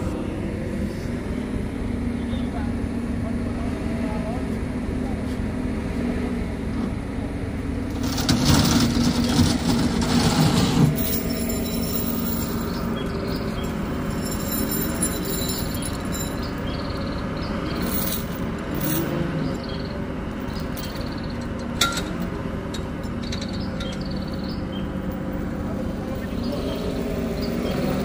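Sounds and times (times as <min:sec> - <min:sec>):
heavy truck engine running: 0:00.0 - 0:28.0.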